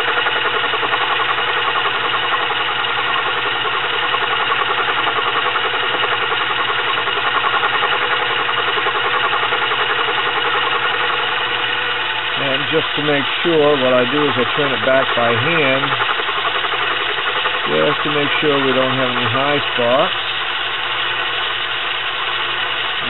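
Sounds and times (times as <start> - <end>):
metal lathe whirring: 0.0 - 23.0.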